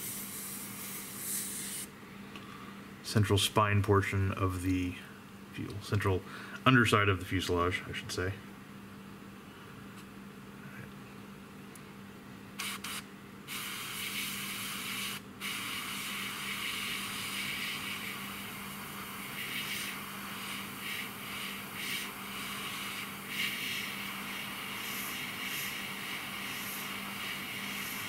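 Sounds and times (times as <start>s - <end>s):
airbrush spraying hiss: 0.0s - 1.9s, 12.6s - 28.0s
puffs of air: 0.0s - 3.0s, 12.6s - 28.0s.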